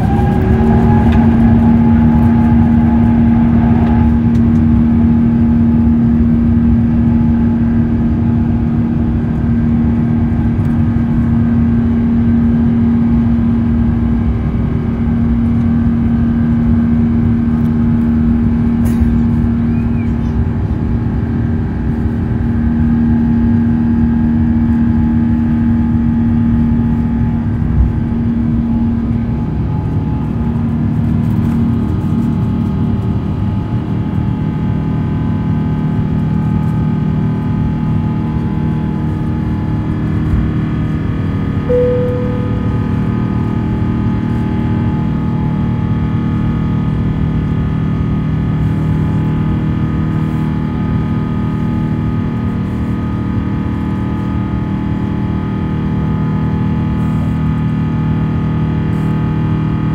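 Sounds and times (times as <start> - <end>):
takeoff roll rumble: 0.0 - 6.0
jet engine drone in cabin: 0.0 - 59.9.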